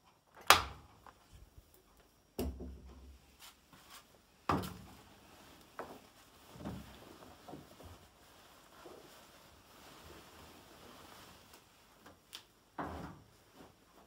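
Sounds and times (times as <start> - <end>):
rags rustling: 3.3 - 12.3.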